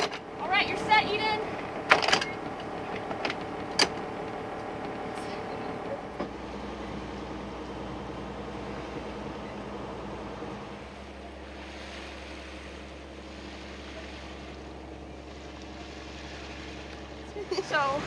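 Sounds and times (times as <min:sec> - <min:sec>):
boat engine droning: 0:00.0 - 0:18.0
water noise: 0:00.0 - 0:18.0.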